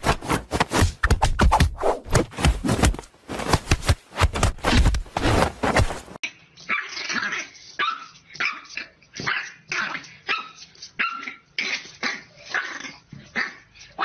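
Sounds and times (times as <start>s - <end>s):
puppy yapping barks: 6.7s - 11.4s.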